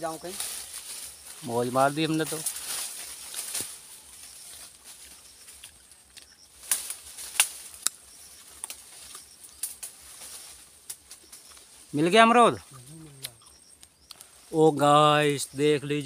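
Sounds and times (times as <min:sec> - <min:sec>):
branches and leaves rustling: 0:00.0 - 0:16.0
twigs snapping: 0:02.3 - 0:11.8, 0:13.2 - 0:14.4.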